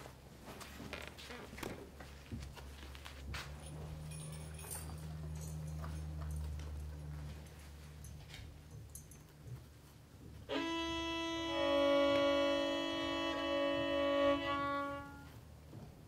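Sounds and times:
brass and strings held chord: 10.5 - 15.4.

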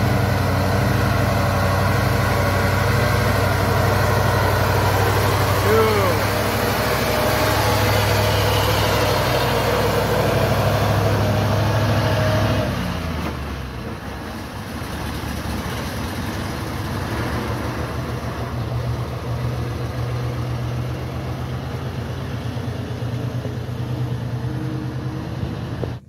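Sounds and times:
truck diesel engine running: 0.0 - 26.0.

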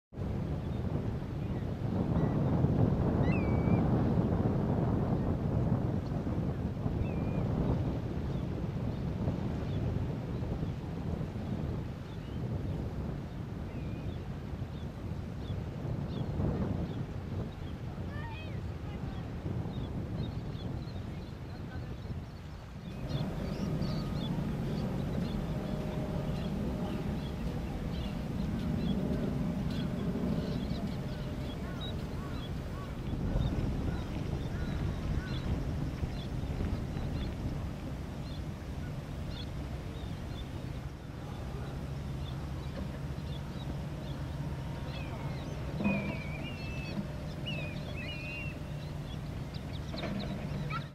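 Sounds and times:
low shoreline rumble: 0.1 - 50.9
high bird calls: 22.8 - 50.9.

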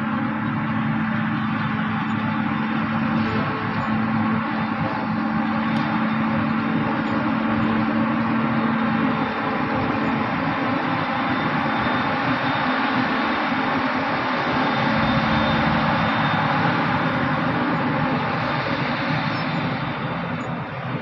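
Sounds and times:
forage harvester machine noise: 0.0 - 21.0
tractor engine: 0.0 - 21.0.

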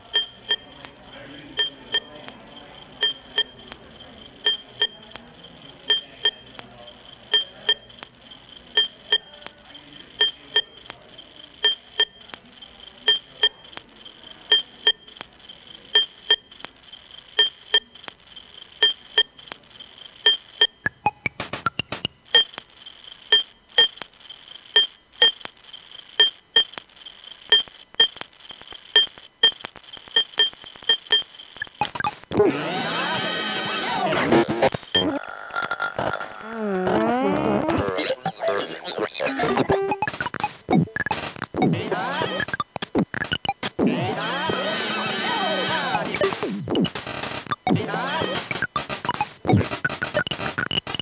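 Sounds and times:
dense crackling noise: 18.0 - 51.0
high-pitched electronic blips: 33.2 - 44.6, 45.3 - 51.0.

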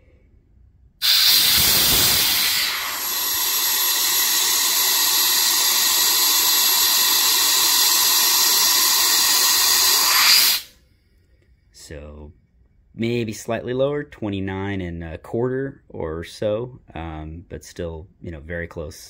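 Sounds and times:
compressed air hissing: 1.0 - 10.8.

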